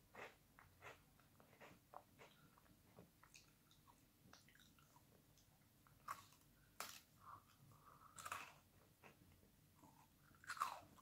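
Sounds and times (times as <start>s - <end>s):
biscuit crunching and chewing: 0.1s - 11.0s.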